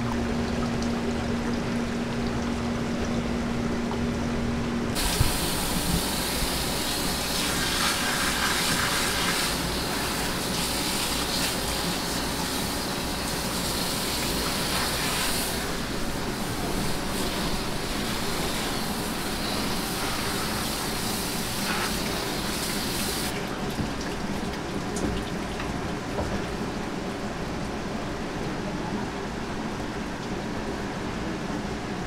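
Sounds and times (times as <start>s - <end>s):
steady low hum: 0.0s - 22.7s
water trickling in tank: 0.0s - 30.8s
hose spraying water: 5.0s - 23.6s.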